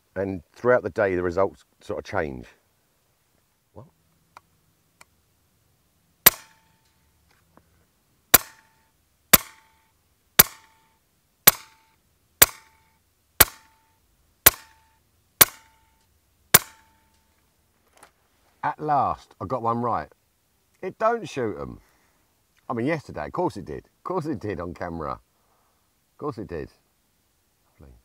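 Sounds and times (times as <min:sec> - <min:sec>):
air rifle shots: 0:06.2 - 0:06.7, 0:08.3 - 0:09.7, 0:10.4 - 0:10.8, 0:11.5 - 0:11.8, 0:12.4 - 0:12.8, 0:13.4 - 0:13.8, 0:14.4 - 0:14.8, 0:15.4 - 0:15.8, 0:16.5 - 0:16.9.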